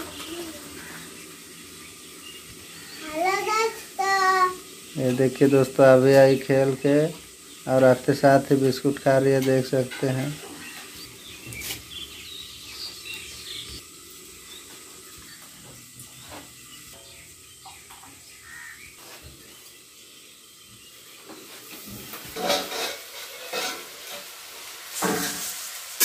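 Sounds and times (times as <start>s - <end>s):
potatoes sizzling in pan: 0.0s - 26.0s
metal spatula scraping pan: 9.4s - 10.9s, 22.3s - 25.6s.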